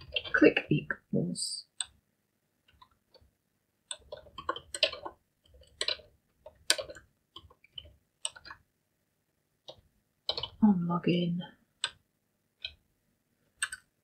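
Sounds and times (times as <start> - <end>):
keyboard keys clicking: 3.9 - 8.6, 9.7 - 10.6, 13.6 - 13.9.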